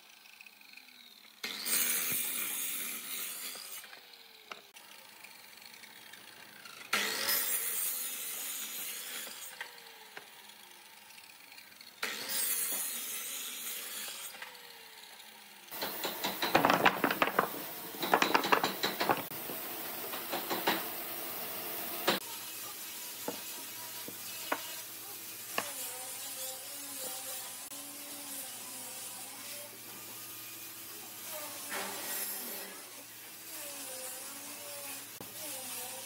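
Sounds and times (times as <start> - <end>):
saw blade winding down: 0.0 - 16.6, 22.0 - 29.8
wooden blocks clattering: 15.8 - 19.6.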